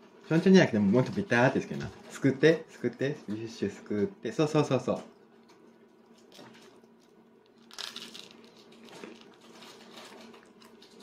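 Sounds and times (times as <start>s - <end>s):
child biting crusty bread: 7.5s - 11.0s.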